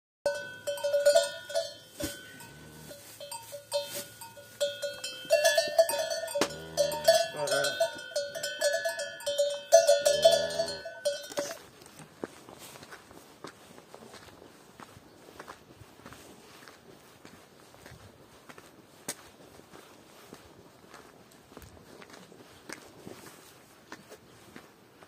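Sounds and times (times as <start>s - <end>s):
cowbell clanking: 0.3s - 11.6s
cows mooing: 2.0s - 3.1s, 5.8s - 8.0s, 9.9s - 11.0s.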